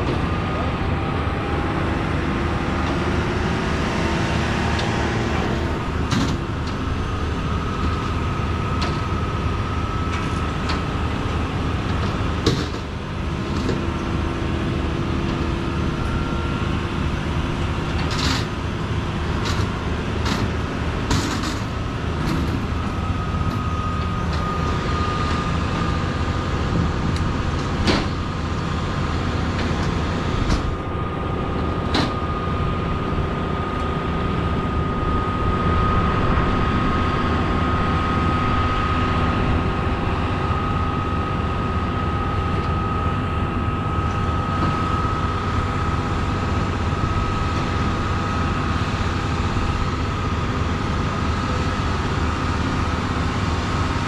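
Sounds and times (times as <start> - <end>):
large engine running: 0.0 - 54.0
thin whine: 20.7 - 54.0.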